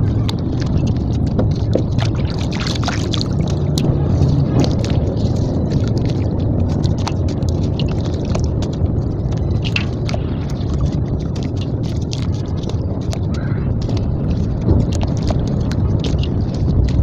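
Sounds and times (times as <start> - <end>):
sharp crackles: 0.0 - 17.0
small splashes: 0.0 - 17.0
wet crunching and squishing: 0.0 - 17.0.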